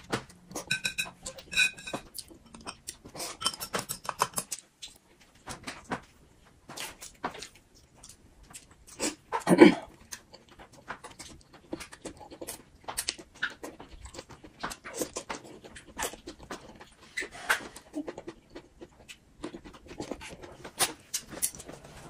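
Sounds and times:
chopsticks clicking on bowls: 0:00.5 - 0:05.0
chewing and slurping: 0:06.8 - 0:22.0.

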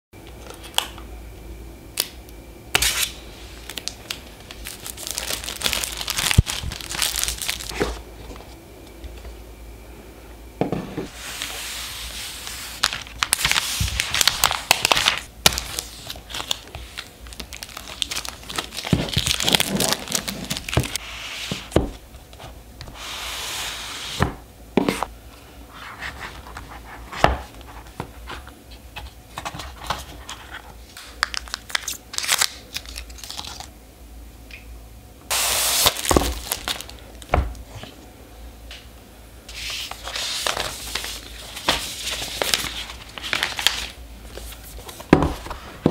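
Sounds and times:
packaging rustling: 0:02.9 - 0:08.6, 0:12.3 - 0:21.0, 0:35.4 - 0:37.3, 0:39.5 - 0:45.9
seal strips tearing: 0:31.1 - 0:33.7.

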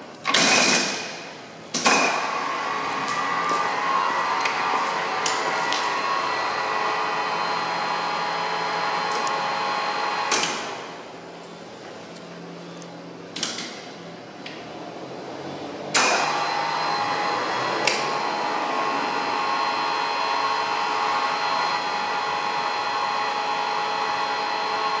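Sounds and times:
drilling machine whine: 0:02.0 - 0:10.8, 0:16.0 - 0:25.0.

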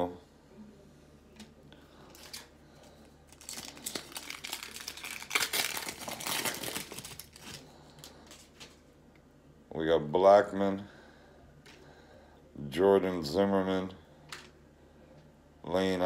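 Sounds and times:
foil wrapper crinkling: 0:02.1 - 0:08.8.

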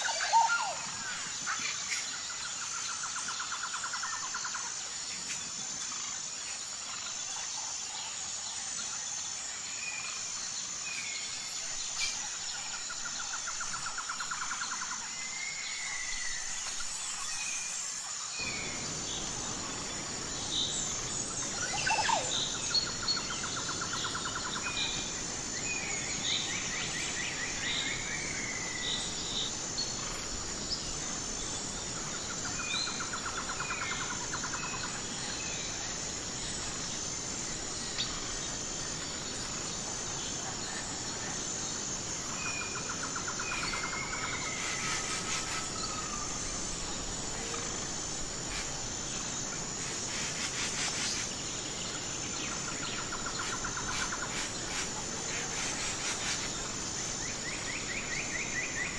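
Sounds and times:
birds singing: 0:00.0 - 0:04.3
insects chirring: 0:00.0 - 0:58.9.

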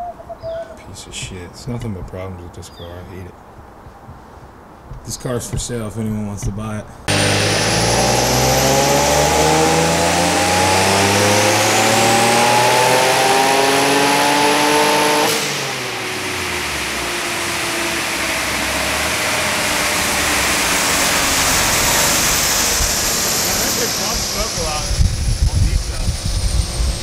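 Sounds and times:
car engine full-throttle pull: 0:07.1 - 0:27.0.

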